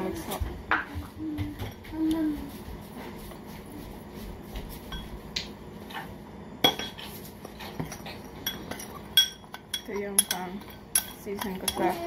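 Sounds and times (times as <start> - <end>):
teaspoon clinking against glass bowl: 8.4 - 12.0.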